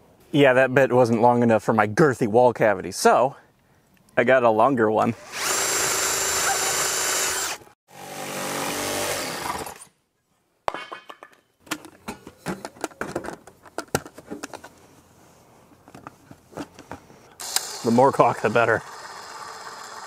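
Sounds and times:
power drill drilling through wall: 5.2s - 9.8s, 17.4s - 20.0s.

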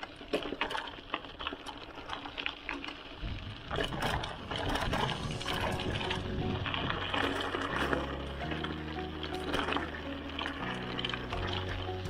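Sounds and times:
bike rattling: 0.0s - 12.0s
tyres crunching over gravel: 0.0s - 12.0s
deep rumble: 4.0s - 12.0s.

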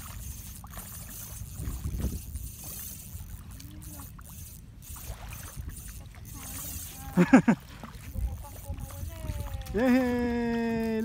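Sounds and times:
wind noise on microphone: 0.0s - 3.3s, 8.0s - 11.0s
small waves lapping on shore: 0.0s - 11.0s.

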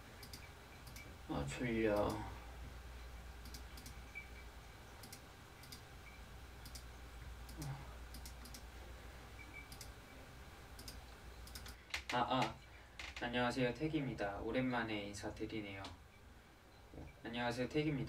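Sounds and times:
faint low hum: 0.0s - 18.0s
computer mouse clicks: 0.2s - 1.1s, 3.4s - 4.0s, 5.0s - 5.8s, 6.6s - 6.9s, 7.5s - 8.7s, 9.5s - 10.0s, 10.8s - 12.1s
keyboard clicks: 0.2s - 1.1s, 3.4s - 4.0s, 5.0s - 5.8s, 6.6s - 6.9s, 7.5s - 8.7s, 9.6s - 9.9s, 10.8s - 12.5s.

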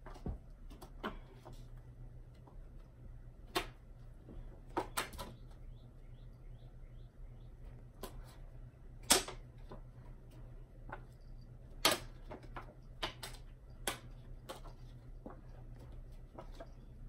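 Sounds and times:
playing cards clicking and slapping: 0.0s - 2.8s, 3.4s - 4.0s, 4.6s - 5.6s, 9.0s - 11.1s, 11.8s - 17.0s.

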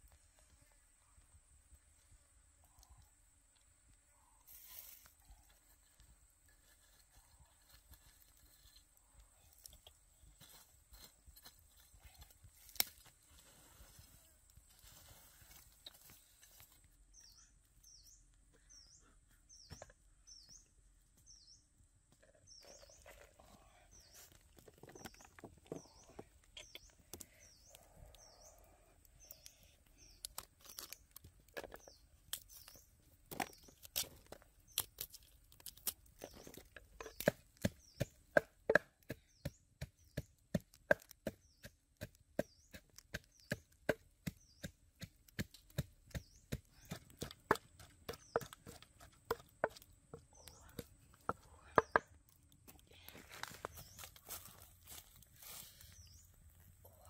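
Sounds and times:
bird chirping: 16.0s - 34.0s, 41.2s - 52.2s, 53.4s - 54.6s, 55.5s - 57.0s.

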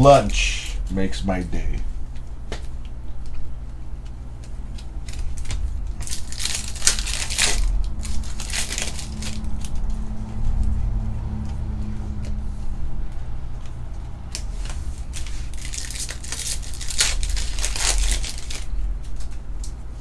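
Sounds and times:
low steady hum: 0.0s - 20.0s
foil wrapper tearing and crinkling: 4.8s - 9.8s, 15.0s - 19.4s.

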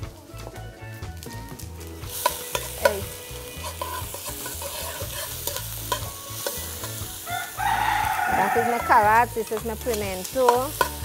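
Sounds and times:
oil sizzling: 0.0s - 11.0s
spoon scraping metal pot: 2.2s - 7.0s, 10.4s - 11.0s.

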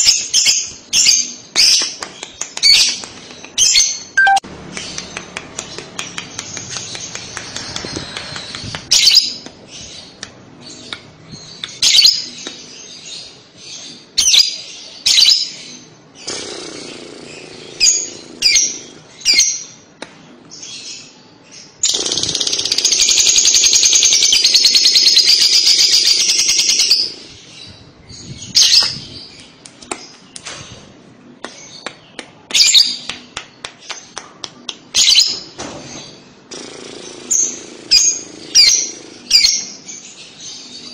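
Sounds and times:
bird chirping shrilly: 3.6s - 5.1s
bird chattering trill: 4.2s - 5.2s.

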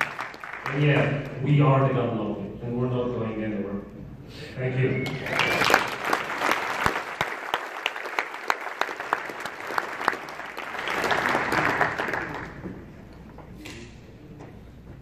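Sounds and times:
audience applauding: 0.0s - 1.1s, 5.0s - 12.9s.

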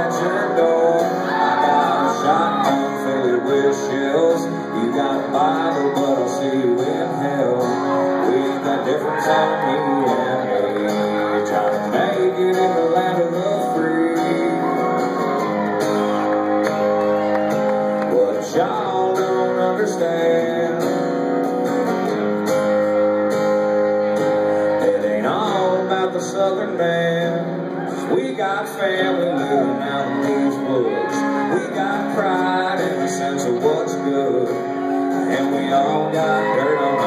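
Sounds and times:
man singing: 0.0s - 15.5s, 17.8s - 21.5s, 24.4s - 37.0s
acoustic guitar strumming: 0.0s - 37.0s.

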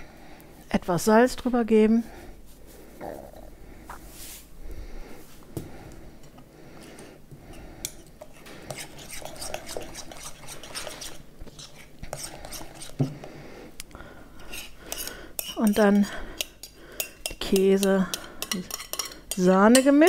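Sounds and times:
utensil clinking and scraping glass bowl: 7.8s - 13.1s, 14.4s - 20.0s.

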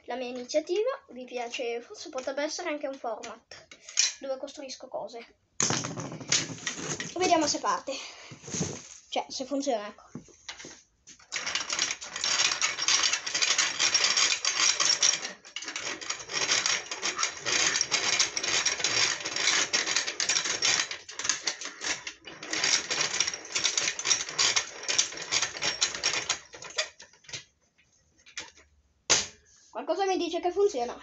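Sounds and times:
fast mechanical clattering: 11.3s - 27.1s.

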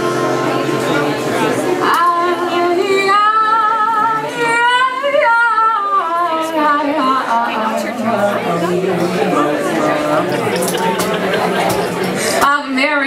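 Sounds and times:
woman singing into microphone: 1.8s - 10.4s, 12.2s - 13.0s.

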